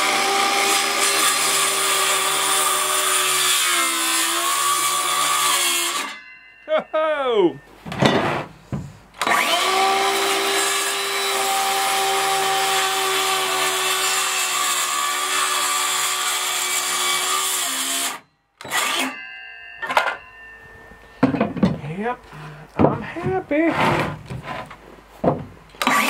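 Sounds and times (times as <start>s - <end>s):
circular saw cutting board: 9.2s - 20.5s
knocks: 21.2s - 21.9s, 22.8s - 25.6s.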